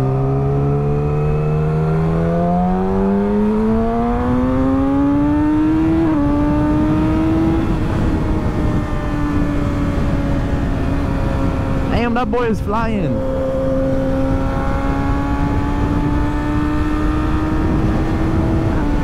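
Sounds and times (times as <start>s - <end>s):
motorcycle engine accelerating: 0.0s - 12.4s, 13.0s - 19.0s
helmet wind rush: 6.3s - 16.1s.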